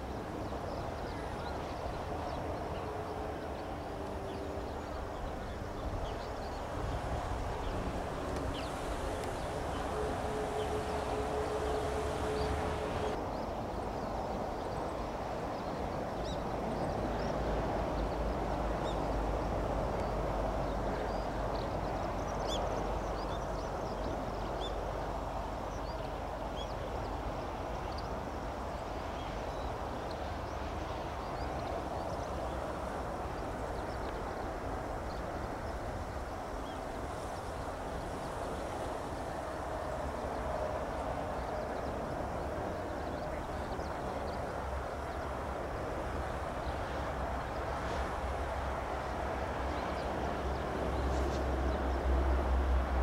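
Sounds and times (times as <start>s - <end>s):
distant jet engine rumble: 1.2s - 13.2s.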